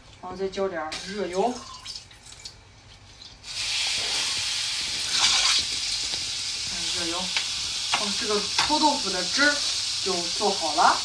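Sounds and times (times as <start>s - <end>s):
hot oil sizzling: 3.0s - 11.0s.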